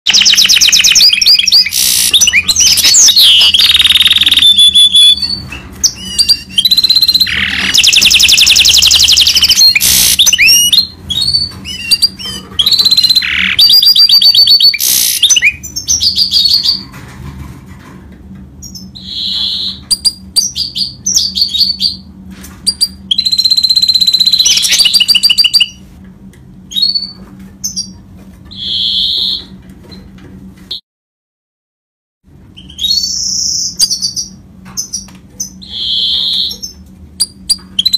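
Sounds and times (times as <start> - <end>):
finch singing trills: 0.1 - 16.8, 22.7 - 25.8, 32.6 - 37.9.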